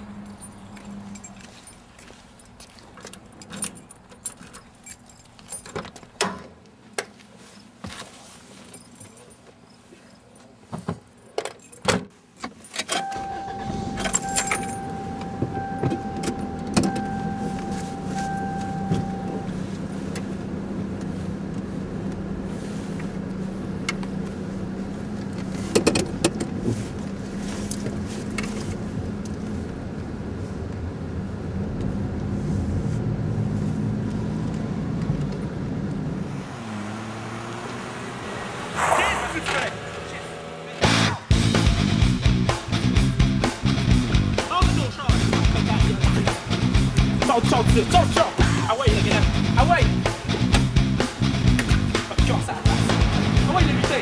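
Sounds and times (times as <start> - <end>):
keys jangling: 0.0 - 6.1, 8.6 - 13.1, 13.9 - 19.3
car engine starting and running: 12.7 - 54.0
high warning tone: 12.9 - 19.8.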